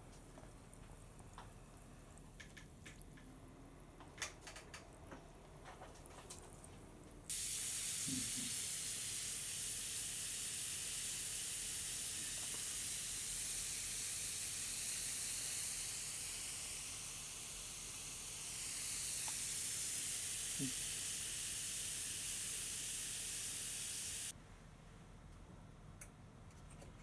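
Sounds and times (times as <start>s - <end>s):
liquid fizzing: 7.3s - 15.4s.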